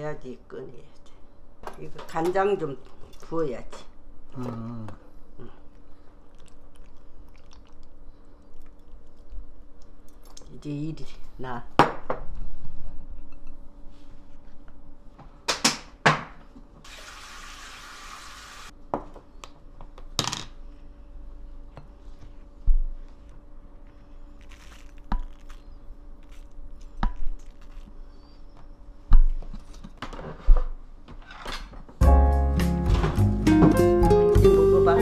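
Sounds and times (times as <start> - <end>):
faint hum: 0.0 - 15.5, 18.7 - 30.8.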